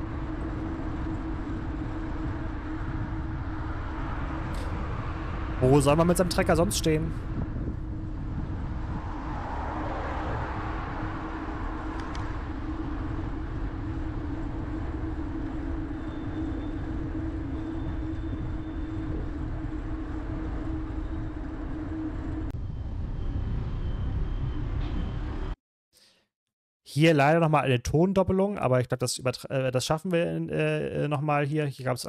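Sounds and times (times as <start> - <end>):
constant low hum: 0.0 - 25.6
traffic: 0.0 - 25.6
wind and road rumble: 0.0 - 25.6.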